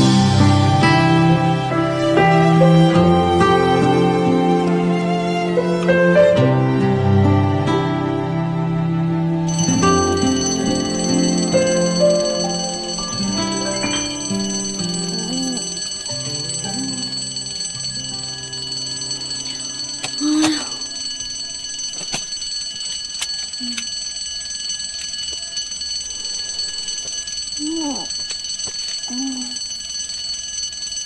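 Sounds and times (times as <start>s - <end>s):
soft background music: 0.0s - 21.8s
alarm clock bells ringing: 9.5s - 31.0s
sleepy vocal sounds: 15.1s - 15.8s.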